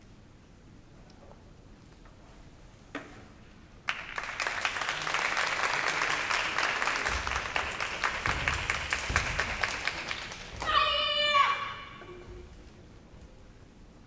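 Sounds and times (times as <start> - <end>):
audience applause: 3.9 - 10.8.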